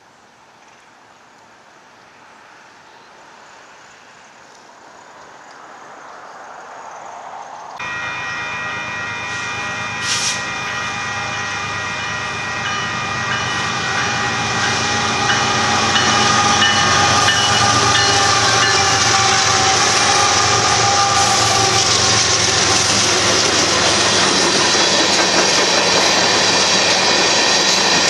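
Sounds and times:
train horn chord: 7.8 - 24.2
train wheels rumbling: 7.8 - 28.0.

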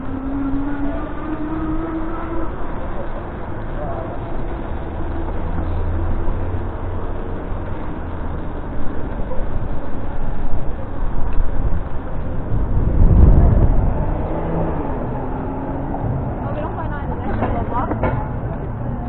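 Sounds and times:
street traffic noise: 0.0 - 19.0
wind rushing on microphone: 10.2 - 17.3.

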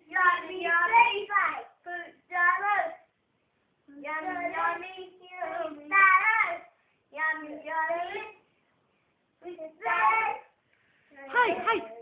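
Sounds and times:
child singing: 0.0 - 3.0, 3.9 - 8.4, 9.4 - 10.5.

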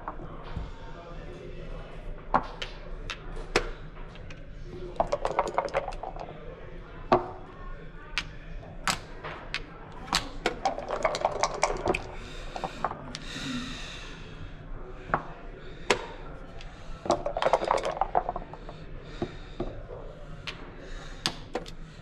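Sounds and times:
dice rattling: 4.9 - 6.3, 8.9 - 13.0, 17.1 - 18.8
checkers clacking on board: 8.9 - 13.0, 17.1 - 18.8.

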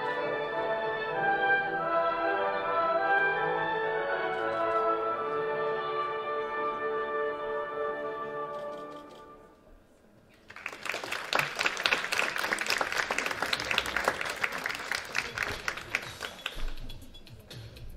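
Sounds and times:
audience clapping: 10.4 - 17.2.

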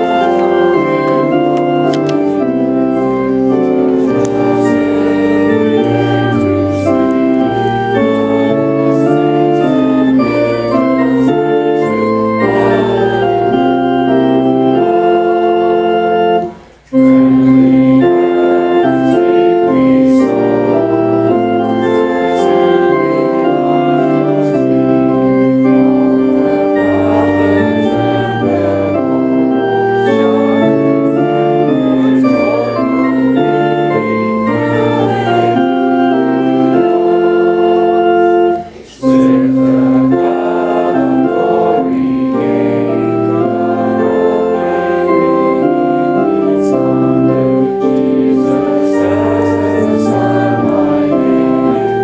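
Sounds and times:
church organ playing a hymn: 0.0 - 52.0.

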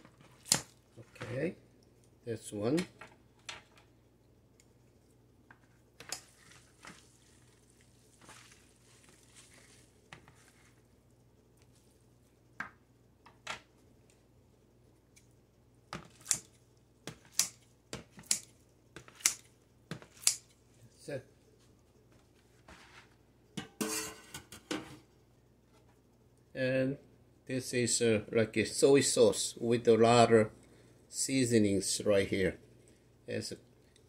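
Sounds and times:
soft handling sounds: 4.8 - 12.5, 19.9 - 23.3
scissors snipping noodles: 16.2 - 16.5, 17.1 - 17.6, 18.2 - 19.4, 20.1 - 20.5.

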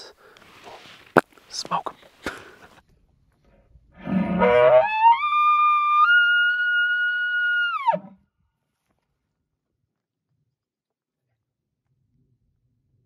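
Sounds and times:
elk call whistle and grunt: 4.0 - 8.2.

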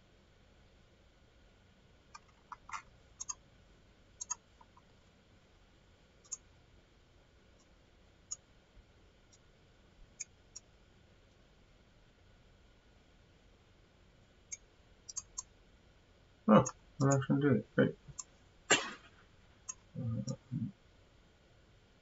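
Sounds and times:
computer mouse clicking: 2.1 - 3.4, 4.2 - 4.9, 6.2 - 6.5, 14.5 - 15.5, 16.6 - 17.3.

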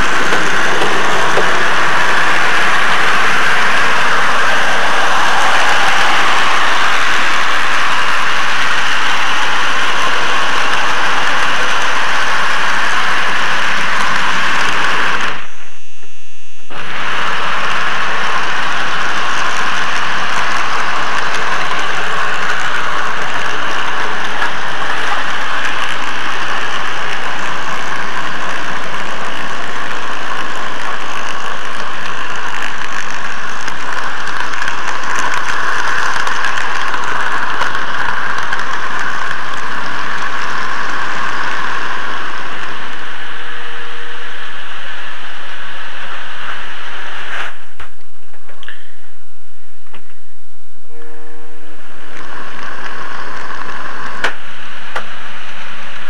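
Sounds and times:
model train running on rails: 0.0 - 15.4, 16.7 - 47.3, 51.0 - 56.0.

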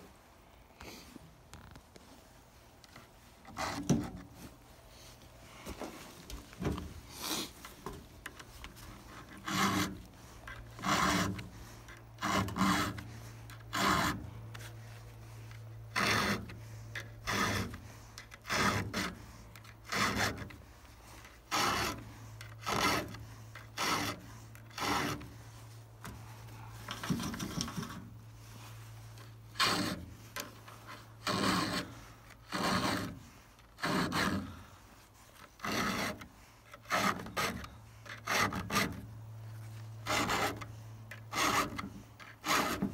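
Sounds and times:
file rasping on chainsaw chain: 8.6 - 26.2, 29.2 - 39.1, 40.0 - 42.9.

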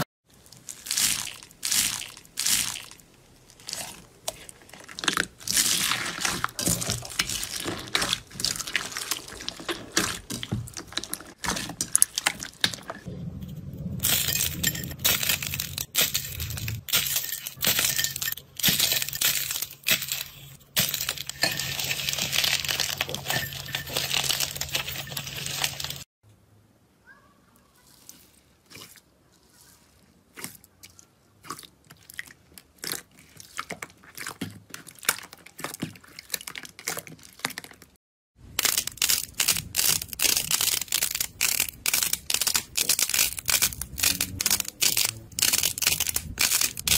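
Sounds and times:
hands squishing slime: 0.4 - 13.1, 27.9 - 37.9
low steady hum: 11.8 - 26.9.

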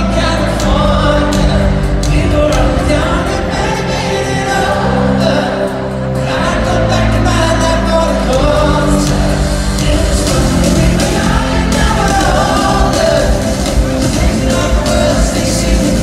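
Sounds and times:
live pop band playing: 0.0 - 16.0
man singing into a microphone: 0.0 - 16.0.

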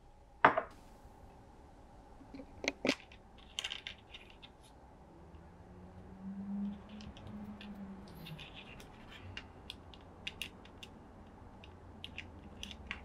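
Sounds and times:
plastic parts clicking and tapping: 2.3 - 4.6, 6.6 - 13.0.

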